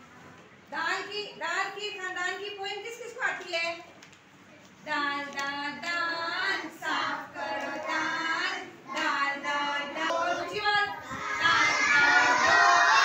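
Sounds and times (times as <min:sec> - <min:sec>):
children chanting in sing-song: 0:05.1 - 0:13.0.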